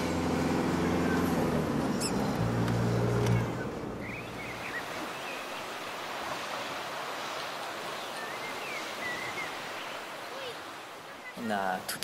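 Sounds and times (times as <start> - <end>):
car road rumble: 0.0 - 4.6
sea surf: 0.0 - 12.0
wind: 0.0 - 12.0.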